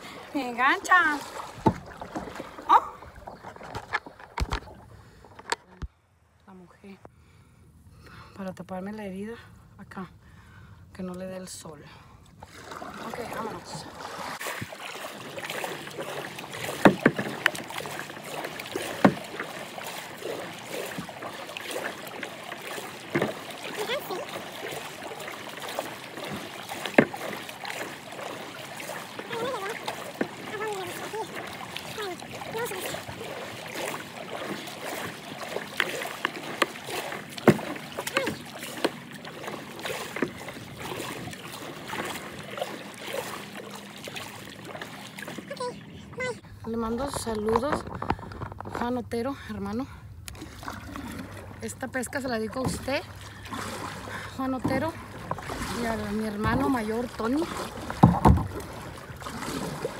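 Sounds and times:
paddle splashing in water: 0:00.0 - 0:06.0, 0:12.3 - 0:49.0, 0:50.3 - 0:59.9
paddle sharp knocks: 0:01.6 - 0:02.4, 0:16.3 - 0:20.2, 0:22.2 - 0:23.5, 0:26.2 - 0:28.2, 0:35.8 - 0:41.2, 0:57.7 - 0:58.8.

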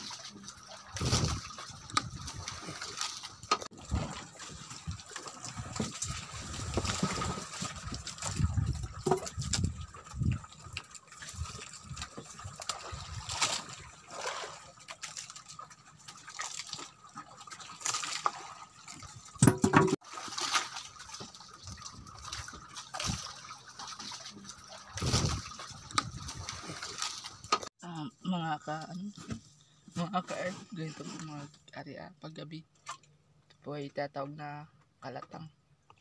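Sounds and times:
water splashing against boat hull: 0:00.0 - 0:27.7.

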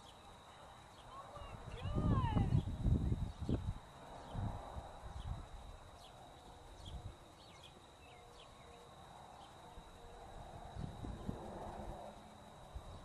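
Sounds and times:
faint high whine: 0:00.0 - 0:13.0.

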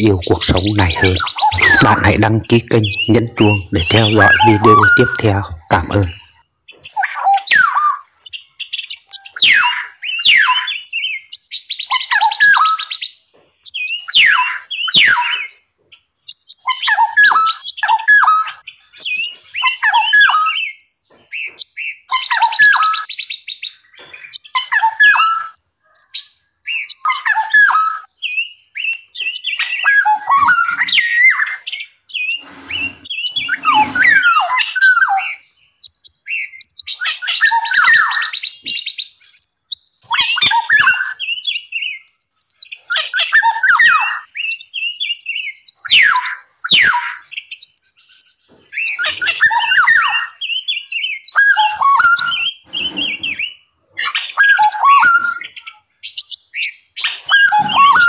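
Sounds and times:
songbirds singing and chirping: 0:00.0 - 0:58.0.

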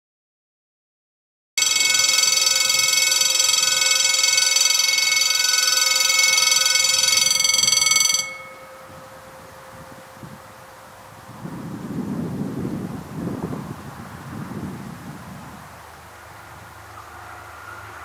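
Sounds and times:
level crossing warning bell ringing: 0:01.6 - 0:11.4.

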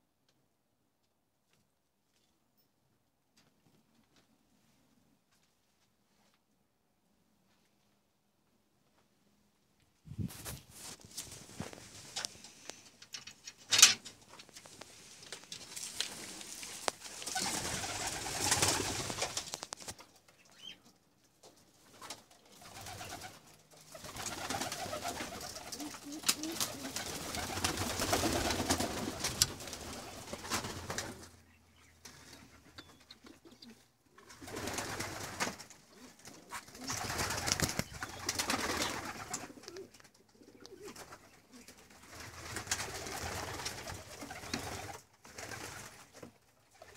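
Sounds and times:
pigeons cooing: 0:24.1 - 0:28.8.

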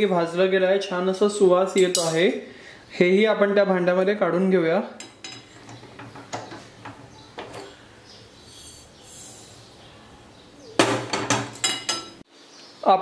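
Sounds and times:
tongs clicking on metal pan: 0:01.8 - 0:02.2
metal pan clanking on grate: 0:10.8 - 0:12.2.

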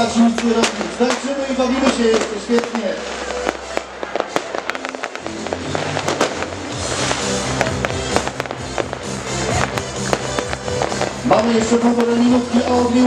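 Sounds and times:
fireworks and firecrackers banging: 0:00.0 - 0:13.0
music with steady bass line: 0:00.0 - 0:13.0.

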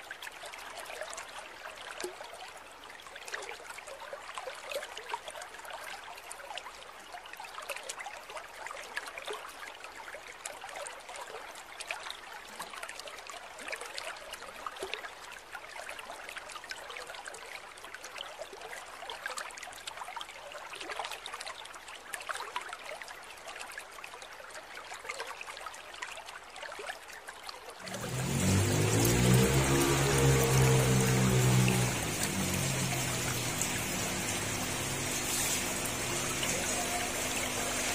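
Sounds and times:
mist maker fizzing in water: 0:27.8 - 0:37.9.

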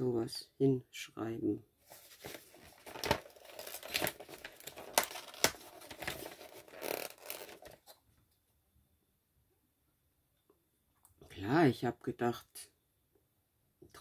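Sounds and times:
packaging crinkling and tearing: 0:01.9 - 0:07.9.

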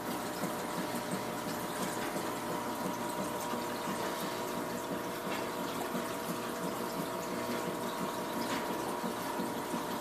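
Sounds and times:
aquarium filter hum: 0:00.0 - 0:10.0
trickle of moving water: 0:00.0 - 0:10.0.

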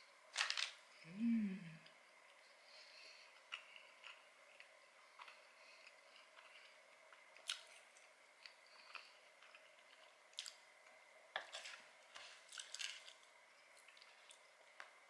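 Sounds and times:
wet chewing: 0:03.3 - 0:10.6.

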